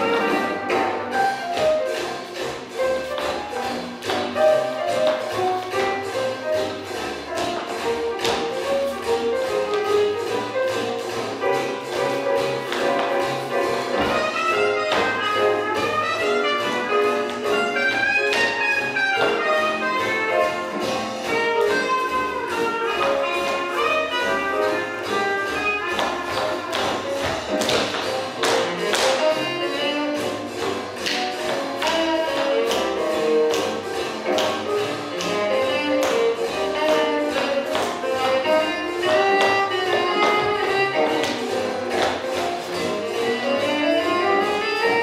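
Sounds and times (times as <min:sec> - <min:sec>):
swing jazz music: 0:00.0 - 0:45.0.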